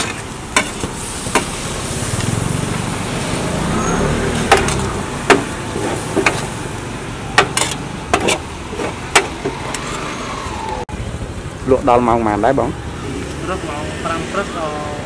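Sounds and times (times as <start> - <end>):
metal spatula scraping a frying pan: 0.0 - 1.6, 7.4 - 10.1
sharp metal clanks: 0.0 - 1.6, 4.4 - 6.6, 7.4 - 10.0
vehicle engine rumbling: 0.0 - 15.0.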